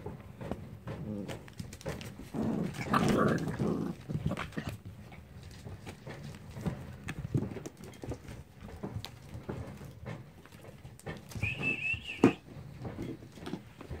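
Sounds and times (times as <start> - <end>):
scuffling and claws on floor: 0.4 - 14.0
puppies growling and grunting: 0.8 - 7.6.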